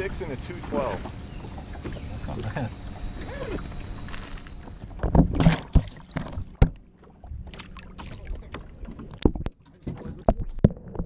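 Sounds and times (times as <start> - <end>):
water against hull: 0.0 - 11.0.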